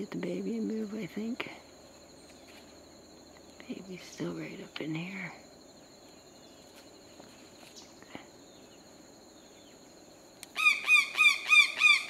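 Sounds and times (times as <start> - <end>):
faint high insect buzz: 0.0 - 12.0
bird calling repeated notes: 10.5 - 12.0.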